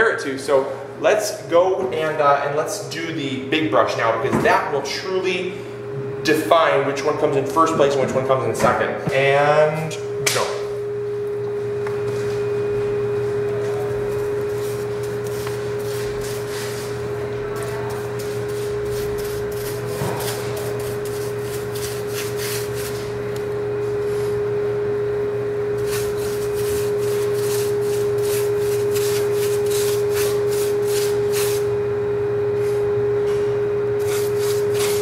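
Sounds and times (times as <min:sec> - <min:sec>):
steady humming tone: 0:00.0 - 0:35.0
paintbrush scrubbing brick: 0:14.0 - 0:23.2, 0:25.8 - 0:31.7, 0:34.0 - 0:35.0.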